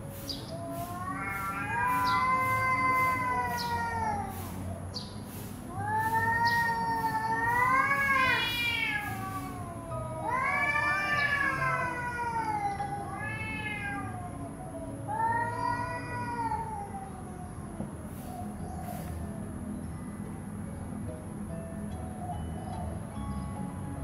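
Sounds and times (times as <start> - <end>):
cats yowling: 0.2 - 19.2.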